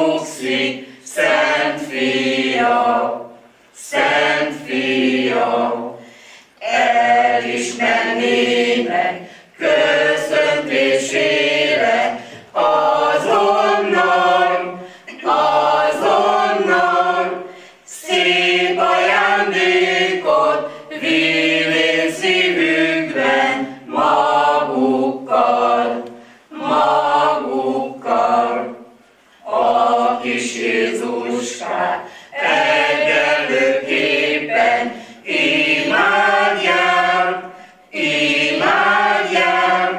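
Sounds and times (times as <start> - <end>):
choir singing a cappella: 0.0 - 39.9
breaths: 6.0 - 6.6, 9.2 - 9.6, 12.2 - 12.5, 14.8 - 15.2, 17.5 - 17.9, 26.2 - 26.5, 32.0 - 32.4, 34.9 - 35.2, 37.5 - 37.9.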